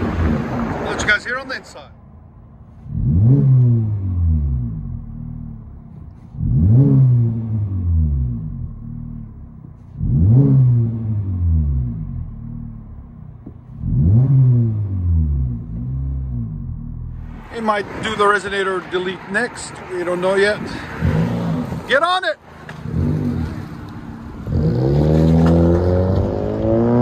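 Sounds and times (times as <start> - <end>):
car engine revving: 0.0 - 27.0
car engine idle drone: 2.0 - 17.6.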